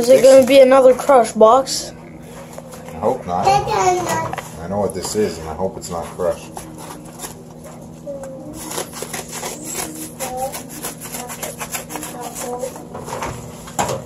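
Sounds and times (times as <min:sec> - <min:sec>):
scissors cutting paper mailer: 0:05.9 - 0:13.2
paper crackling and rustling: 0:08.5 - 0:13.2.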